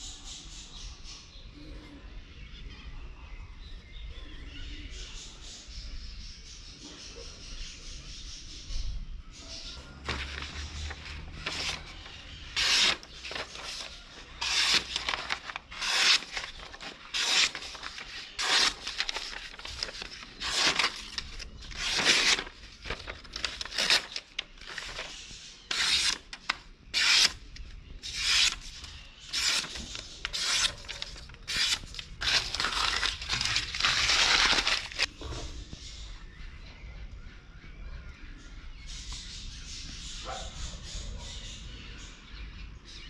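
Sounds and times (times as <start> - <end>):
knife slicing paper swishes: 10.1 - 27.4, 28.0 - 35.1.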